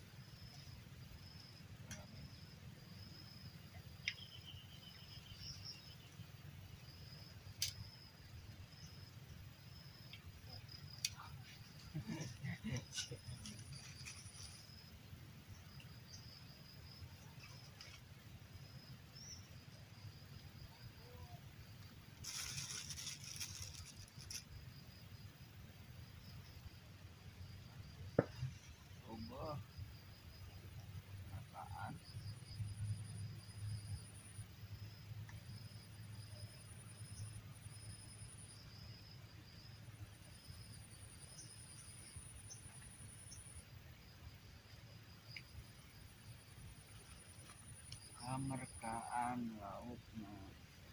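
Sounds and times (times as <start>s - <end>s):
faint high insect drone: 0.0s - 50.9s
rustling and scraping: 11.4s - 14.8s, 22.2s - 24.5s.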